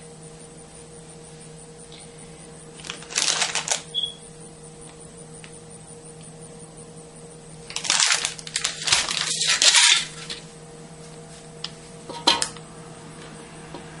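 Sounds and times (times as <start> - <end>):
faint steady hum: 0.0 - 14.0
plastic bag crinkling: 2.8 - 4.0, 7.7 - 10.4.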